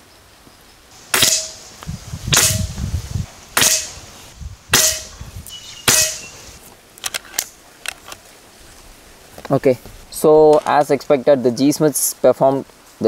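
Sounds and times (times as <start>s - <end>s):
air rifle shots: 1.1s - 1.7s, 2.3s - 2.8s, 3.6s - 4.1s, 4.7s - 5.2s, 5.8s - 6.4s.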